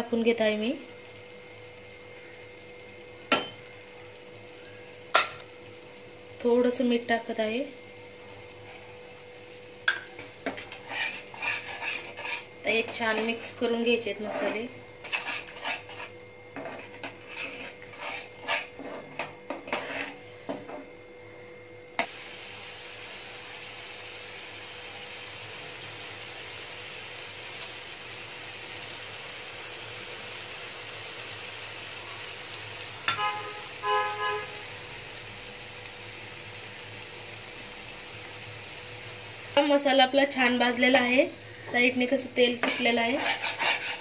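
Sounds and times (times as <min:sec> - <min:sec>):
paste sizzling in oil: 0:00.0 - 0:20.3, 0:22.0 - 0:44.0
metal spatula scraping pan: 0:10.2 - 0:20.2, 0:42.4 - 0:44.0.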